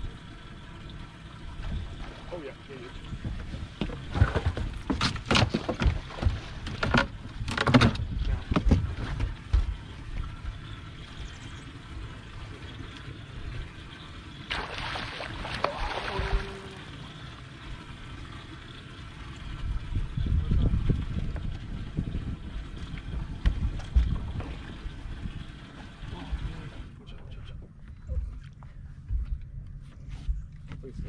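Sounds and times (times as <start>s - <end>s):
knocks on boat deck: 3.2s - 9.8s
water splash: 14.5s - 17.0s.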